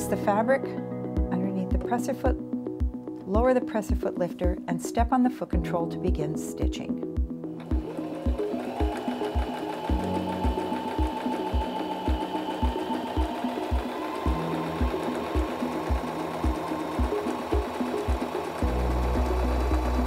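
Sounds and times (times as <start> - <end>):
background music with low beat: 0.1 - 20.0
sewing machine stitching: 7.6 - 20.0.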